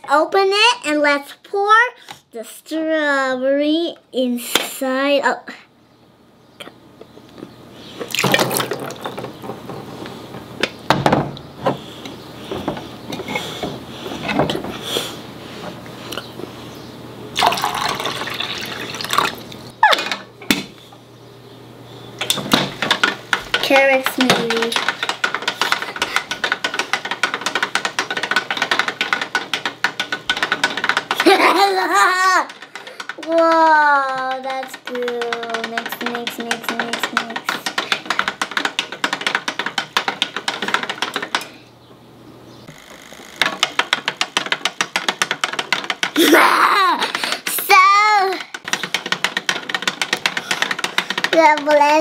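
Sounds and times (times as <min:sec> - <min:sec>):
plastic pieces rattling in jug: 0:08.1 - 0:09.3
toy blender running: 0:28.4 - 0:39.2, 0:46.0 - 0:52.0.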